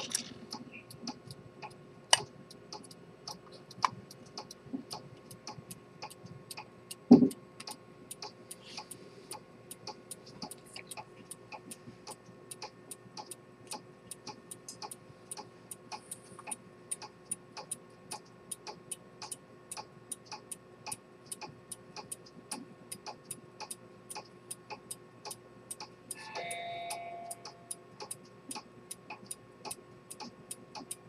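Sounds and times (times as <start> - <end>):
faint steady hum: 0.0 - 31.0
pocket watch ticking: 0.0 - 31.0.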